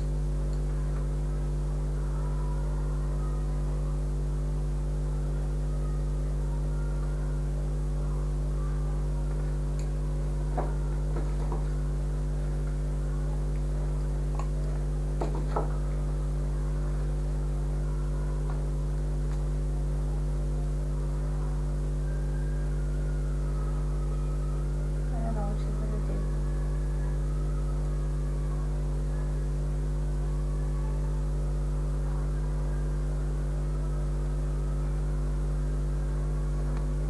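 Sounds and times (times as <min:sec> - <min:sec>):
low electrical hum: 0:00.0 - 0:37.0.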